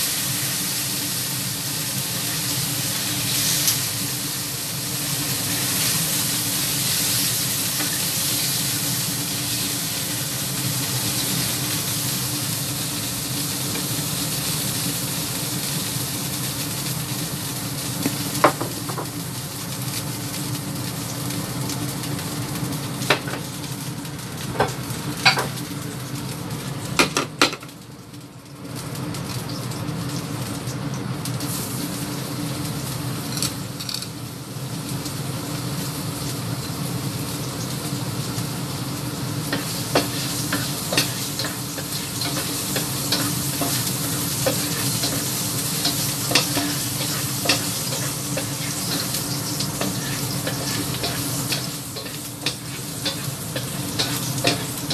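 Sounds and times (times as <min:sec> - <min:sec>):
oil sizzling in a wok: 0:00.0 - 0:54.9
spatula scraping a wok: 0:39.4 - 0:54.9.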